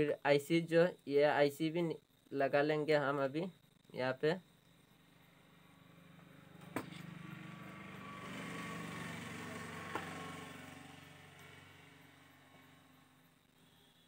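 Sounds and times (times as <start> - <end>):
engine passing by: 5.7 - 13.4.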